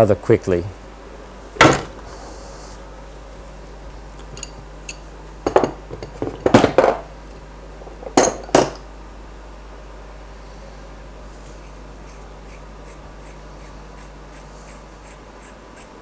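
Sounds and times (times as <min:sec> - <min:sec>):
steel tools clinking on workbench: 0:08.0 - 0:08.8.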